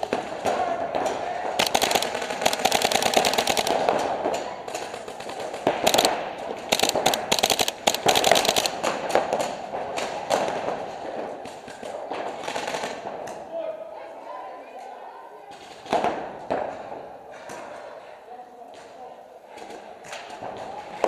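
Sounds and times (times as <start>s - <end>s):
paintball markers firing rapidly: 0.0s - 9.6s.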